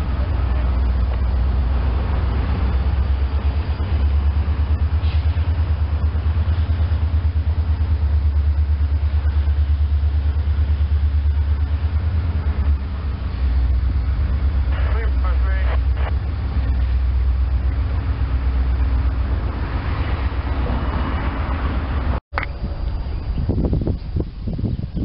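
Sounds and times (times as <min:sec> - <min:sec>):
diesel locomotive engine rumble: 0:00.0 - 0:25.0.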